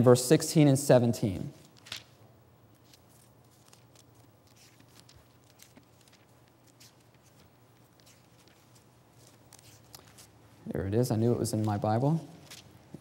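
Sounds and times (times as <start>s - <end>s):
thin pages being leafed through: 1.6s - 10.5s, 11.4s - 12.8s.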